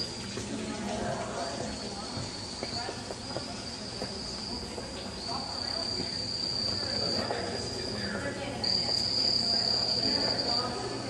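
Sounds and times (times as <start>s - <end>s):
high-pitched insect trill: 1.3s - 11.0s.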